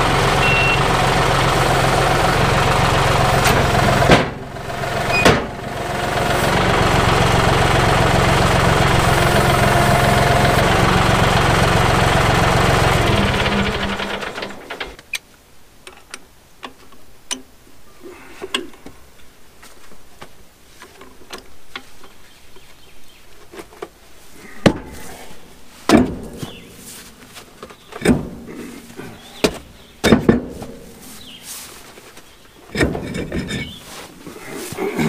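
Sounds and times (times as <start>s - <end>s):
heavy knocks of wheel handled: 3.4s - 4.5s, 25.9s - 26.6s, 29.3s - 30.8s.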